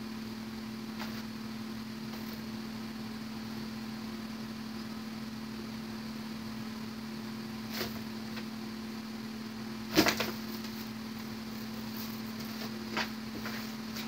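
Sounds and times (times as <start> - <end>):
steady low hum: 0.0 - 14.0
cardboard rustling and scraping: 1.0 - 1.3, 2.1 - 2.5, 7.7 - 8.4, 9.9 - 14.0
cardboard scuff: 9.9 - 10.8.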